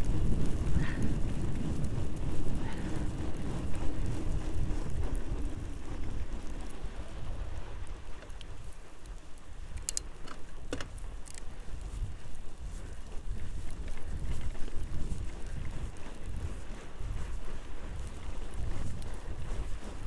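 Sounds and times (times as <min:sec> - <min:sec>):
bike tyres rolling over snow: 0:00.0 - 0:20.0
wind buffeting microphone: 0:00.0 - 0:20.0
sharp clicks: 0:09.7 - 0:11.5.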